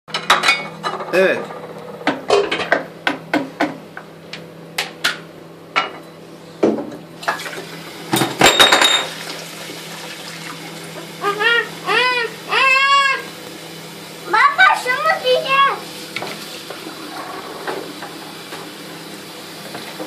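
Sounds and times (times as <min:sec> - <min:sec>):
dishes clinking in a steel sink: 0:00.1 - 0:01.5, 0:08.1 - 0:09.2.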